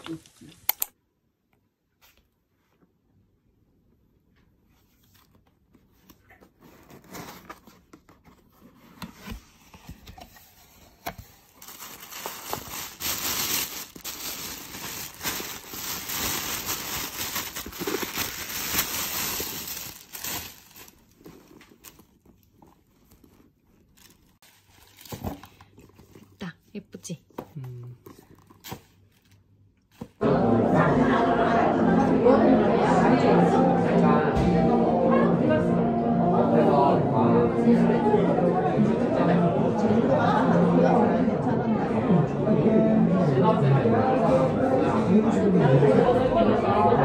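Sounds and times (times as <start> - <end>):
cardboard box opening: 6.4 - 12.7, 16.6 - 18.8
plastic bag crinkling: 11.2 - 26.0.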